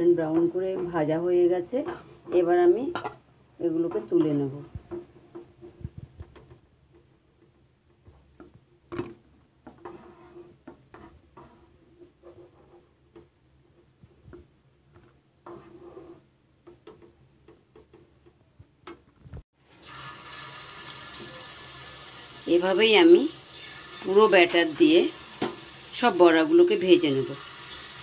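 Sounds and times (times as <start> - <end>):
spoon scraping a pan: 9.7 - 13.2, 23.4 - 28.0
batter sizzling in hot oil: 19.6 - 28.0.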